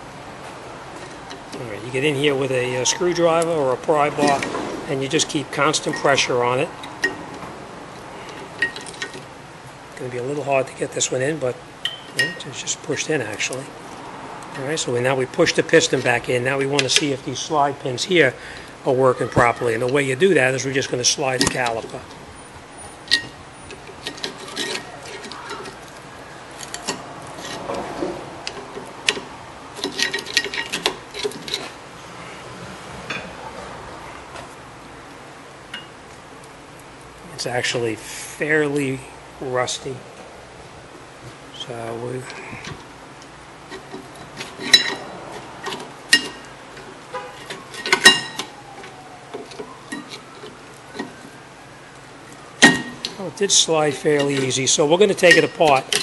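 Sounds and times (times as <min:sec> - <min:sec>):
brake caliper clicking and scraping: 0:21.3 - 0:22.2, 0:23.0 - 0:31.8, 0:42.2 - 0:51.4, 0:52.3 - 0:56.0.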